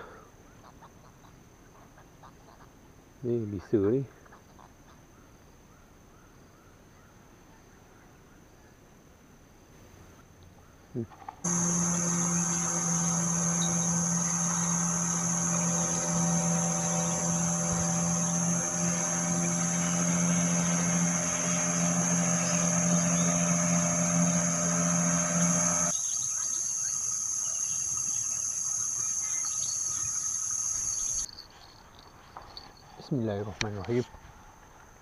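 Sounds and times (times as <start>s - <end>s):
outboard motor running: 11.5s - 25.9s
high-pitched insect buzz: 11.5s - 31.3s.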